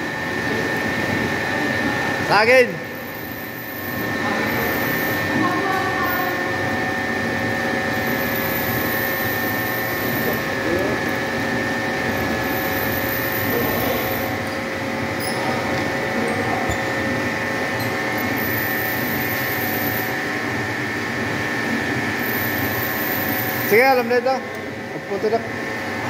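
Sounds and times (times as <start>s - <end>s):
milling machine humming: 0.0s - 26.0s.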